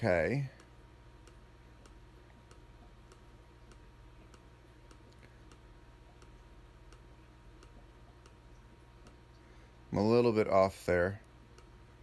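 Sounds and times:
low steady hum: 0:00.0 - 0:12.0
computer mouse clicks: 0:00.6 - 0:08.4, 0:11.2 - 0:11.8.

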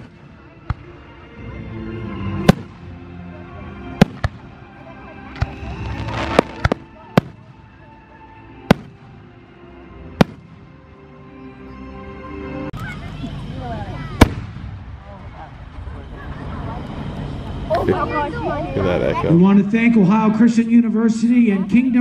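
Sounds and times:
fireworks crackling: 0:00.0 - 0:01.1, 0:02.4 - 0:03.1, 0:03.9 - 0:08.0, 0:08.6 - 0:09.5, 0:10.1 - 0:10.8, 0:13.0 - 0:18.2
background music: 0:00.0 - 0:22.0
fireworks bangs: 0:02.4 - 0:02.9, 0:04.0 - 0:04.6, 0:05.3 - 0:07.6, 0:08.6 - 0:09.3, 0:10.2 - 0:10.7, 0:14.1 - 0:15.4.

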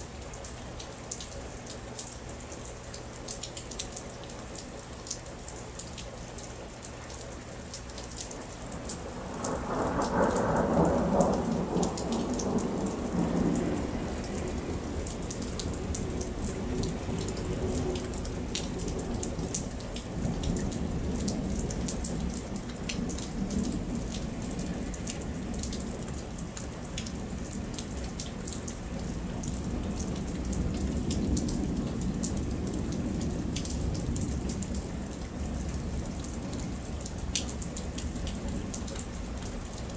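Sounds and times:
rain falling on pavement: 0:00.0 - 0:39.9
thunder rumbling: 0:09.0 - 0:26.3.

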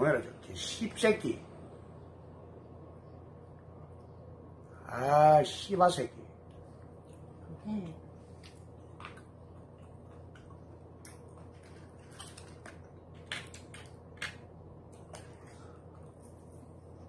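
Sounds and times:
steady low hum: 0:00.0 - 0:17.0
crunching and clicking of eating: 0:08.2 - 0:17.0.

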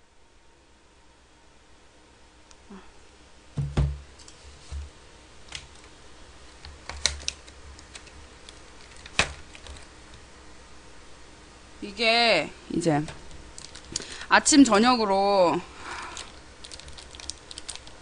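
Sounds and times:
sharp knocks: 0:03.6 - 0:04.1
plastic bag crinkling: 0:13.5 - 0:14.2, 0:16.0 - 0:18.0.

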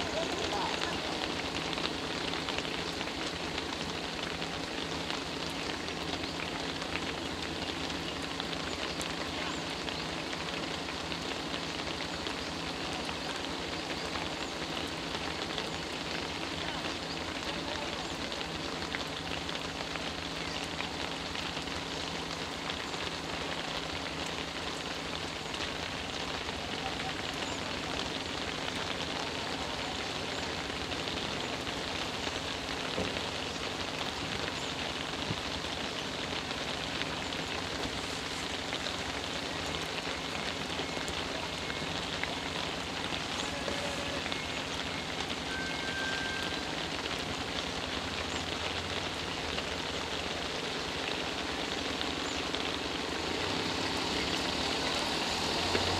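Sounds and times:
steady rain falling: 0:00.0 - 0:55.9.

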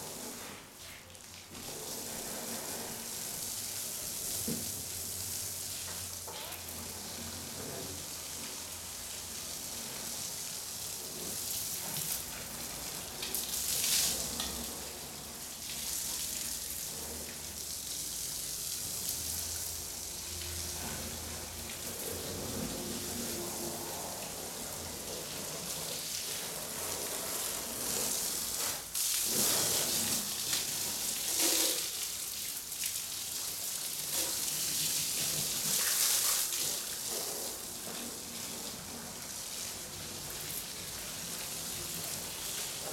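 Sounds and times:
hose water spraying on car: 0:00.0 - 0:42.9.

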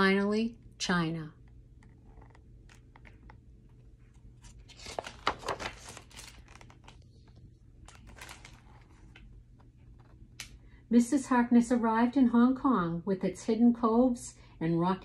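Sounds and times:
paper pages turning: 0:02.1 - 0:10.5.

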